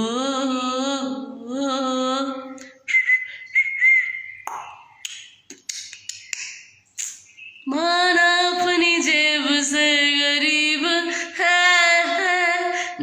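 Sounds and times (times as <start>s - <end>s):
woman singing unaccompanied: 0.0s - 2.7s, 7.6s - 13.0s
thin high whistle: 2.8s - 4.6s
breathy puffs and lip clicks: 5.0s - 7.3s.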